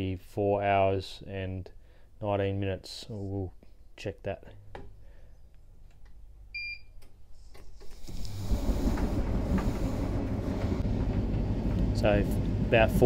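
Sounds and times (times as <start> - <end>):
dryer humming: 7.8 - 13.0
drum rumbling: 8.2 - 13.0.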